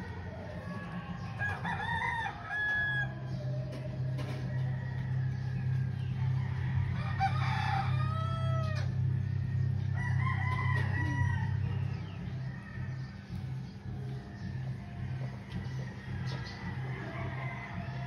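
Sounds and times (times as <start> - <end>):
steady low hum: 0.0 - 18.0
rooster crowing: 0.3 - 3.3, 4.4 - 9.0, 10.0 - 13.0, 15.0 - 18.0.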